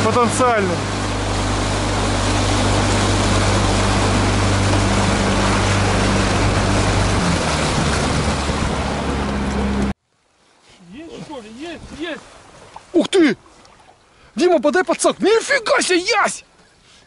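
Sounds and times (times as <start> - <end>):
outboard motor running: 0.0 - 10.0
water rushing along hull: 0.0 - 17.0
wind: 0.0 - 17.0.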